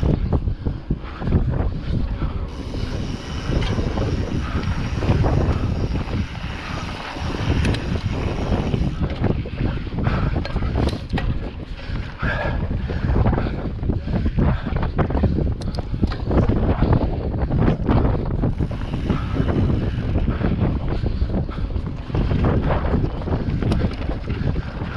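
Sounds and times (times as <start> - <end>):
wind buffeting microphone: 0.0 - 24.9
bike knocks and rattles: 2.4 - 12.1, 14.6 - 20.9, 21.6 - 24.9.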